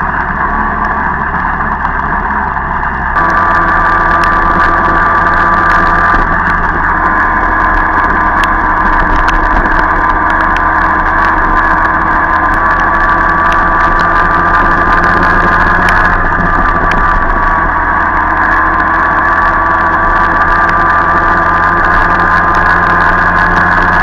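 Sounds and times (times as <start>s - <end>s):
two-stroke moped engine running: 0.0s - 24.0s
sharp ticks: 3.2s - 17.8s.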